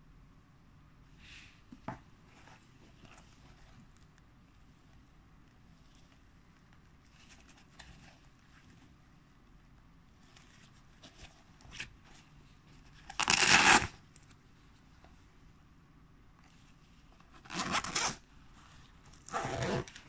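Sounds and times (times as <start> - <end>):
fastening ripping open: 13.2 - 14.0.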